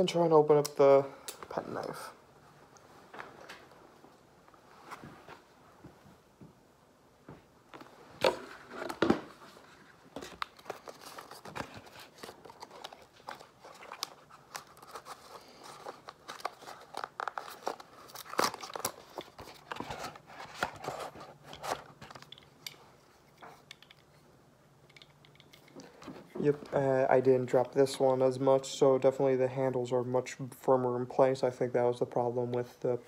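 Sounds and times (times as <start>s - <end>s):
clicks and rustles of packaging: 7.7s - 24.2s.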